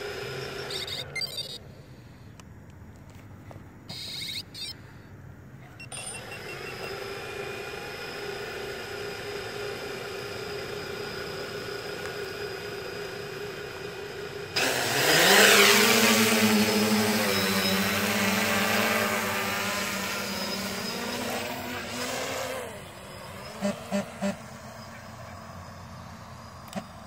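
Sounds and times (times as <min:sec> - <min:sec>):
drone motors humming: 0:00.0 - 0:02.5, 0:03.4 - 0:27.0
short beeps: 0:00.7 - 0:01.6, 0:03.9 - 0:04.8, 0:05.7 - 0:06.9.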